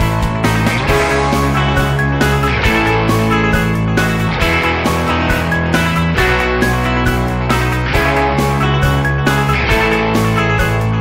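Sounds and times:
instrumental music with steady beat: 0.0 - 11.0.

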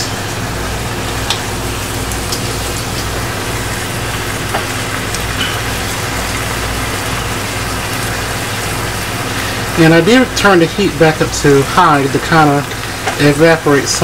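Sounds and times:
meat sizzling in a skillet: 0.1 - 14.0
oil ticks and pops: 1.2 - 1.5, 4.1 - 7.2, 12.1 - 13.4.

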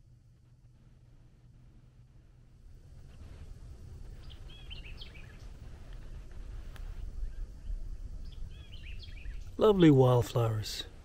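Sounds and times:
low outdoor rumble: 0.0 - 11.0
bird chirping: 4.0 - 6.2, 6.8 - 10.9.

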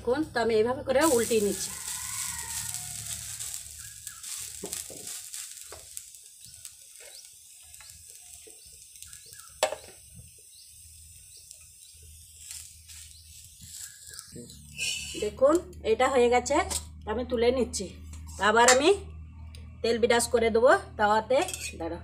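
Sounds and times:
batter sizzling on a griddle: 0.8 - 15.3.

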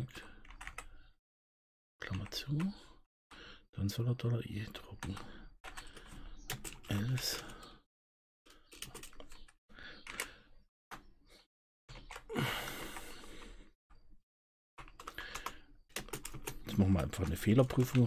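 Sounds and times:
keyboard typing: 0.4 - 1.0, 5.0 - 7.7, 8.5 - 11.1, 11.9 - 13.5, 14.8 - 18.0
breathy noise: 12.2 - 13.8.

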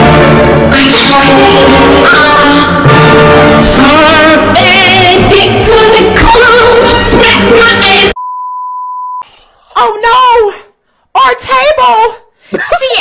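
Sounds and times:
loud music with vocals: 0.0 - 8.2.

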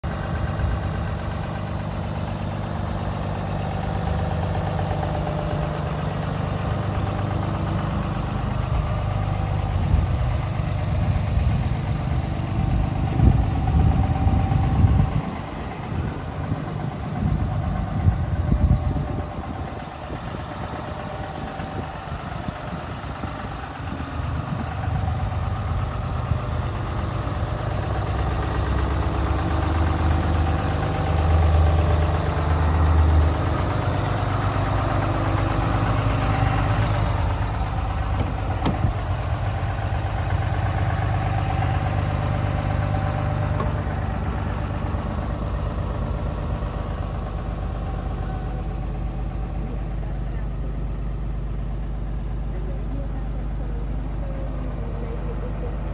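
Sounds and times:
diesel engine idling: 0.0 - 55.9
wind rumbling on microphone: 12.7 - 23.2.

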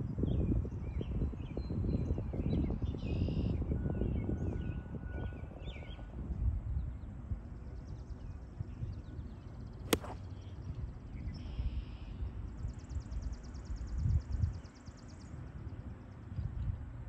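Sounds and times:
golf club striking ball: 9.9 - 10.2.

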